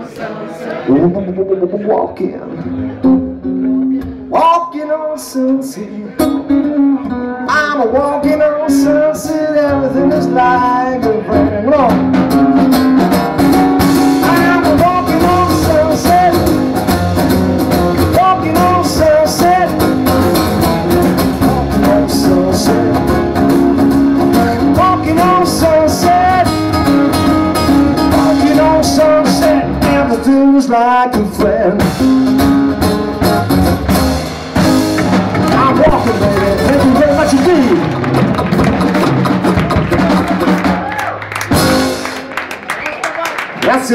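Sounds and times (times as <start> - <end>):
man singing: 0.8 - 2.6, 4.0 - 12.3, 14.0 - 16.8, 17.8 - 32.4, 35.4 - 37.9
acoustic guitars strummed: 2.5 - 40.8, 41.4 - 42.4
upright double bass: 6.2 - 42.2
drum kit: 11.3 - 30.4, 31.1 - 42.6.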